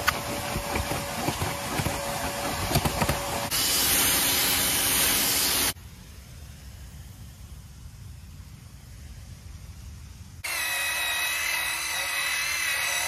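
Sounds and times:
loud spraying hiss: 3.5 - 5.8.

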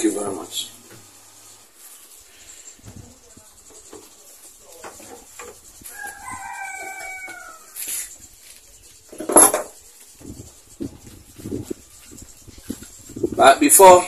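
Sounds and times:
rooster crowing: 5.6 - 8.2.

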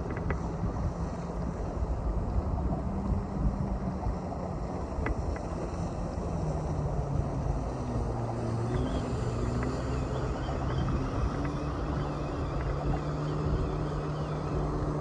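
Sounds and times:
faint clicks: 0.0 - 0.5, 4.9 - 5.8, 8.7 - 13.6
low engine hum: 0.0 - 15.0
wind rumbling on microphone: 0.0 - 15.0.

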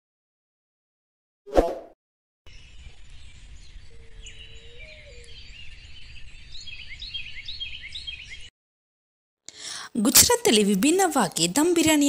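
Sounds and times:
small birds chirping: 2.5 - 8.5.

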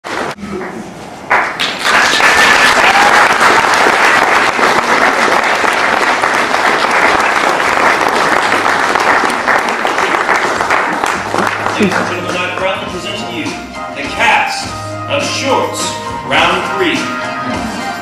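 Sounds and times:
audience applauding: 1.3 - 13.0.

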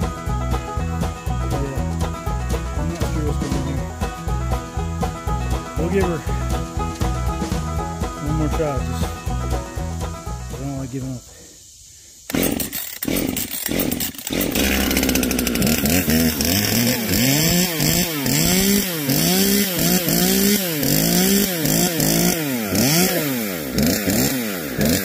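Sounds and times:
chainsaw revving: 1.6 - 4.7, 12.3 - 25.0.

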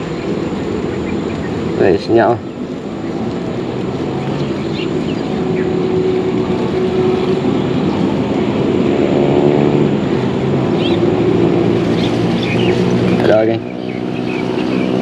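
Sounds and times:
boat motor running: 0.0 - 15.0.

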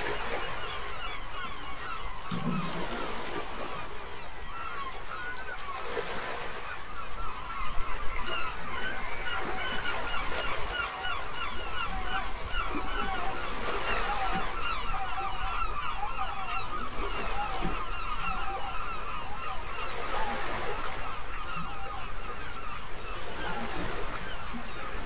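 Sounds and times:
gulls calling: 0.0 - 25.0.

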